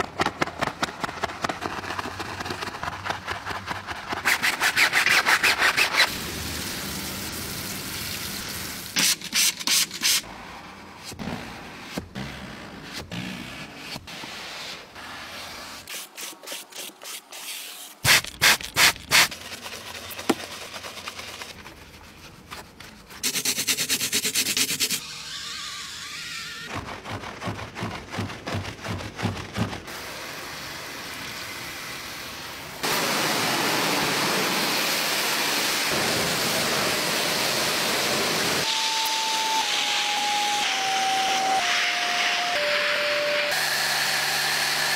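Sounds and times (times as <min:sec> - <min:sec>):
rubbing and scrubbing: 0:01.0 - 0:06.1, 0:13.4 - 0:30.0.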